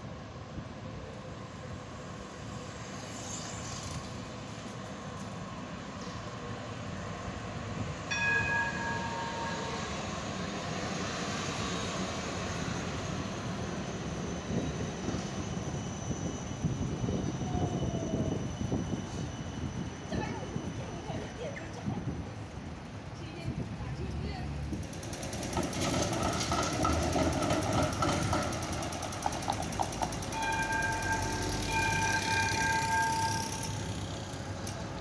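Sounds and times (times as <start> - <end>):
tram running noise: 0.0 - 35.0
tram gong bell: 8.1 - 11.0, 26.2 - 34.5.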